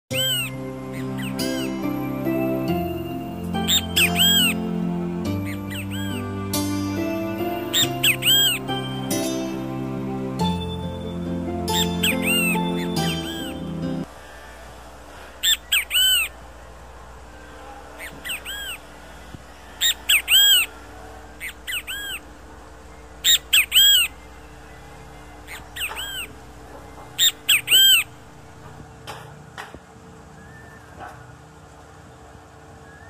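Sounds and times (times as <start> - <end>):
bird calling three-note phrase: 0.1 - 14.1.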